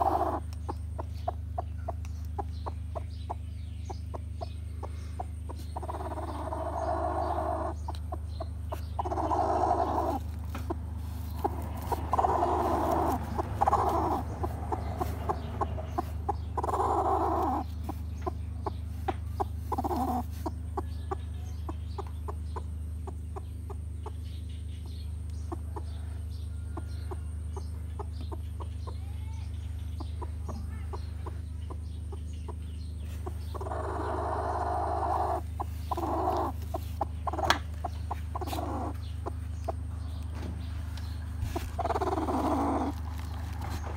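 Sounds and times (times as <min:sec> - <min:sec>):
hen clucking: 0:00.0 - 0:43.9
steady low hum: 0:00.0 - 0:43.9.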